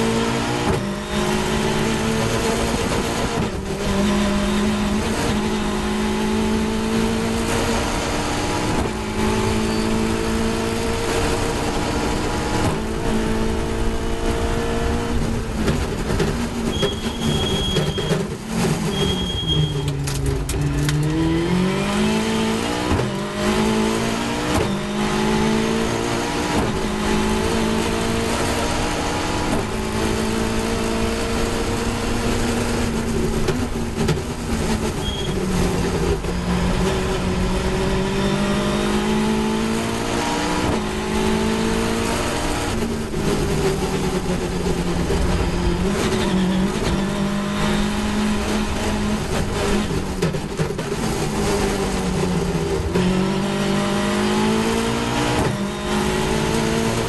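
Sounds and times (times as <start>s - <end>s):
racing engine revving: 0.0s - 57.0s
wind and road noise: 0.0s - 57.0s.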